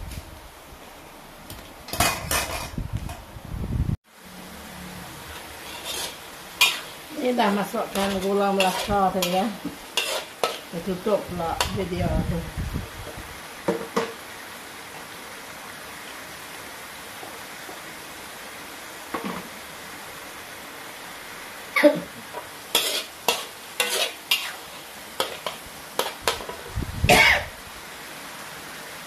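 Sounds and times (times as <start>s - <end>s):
metal ladle scraping a wok: 1.9s - 2.8s, 5.2s - 7.1s, 7.8s - 10.8s, 22.3s - 27.4s
paste sizzling in a wok: 4.1s - 29.0s.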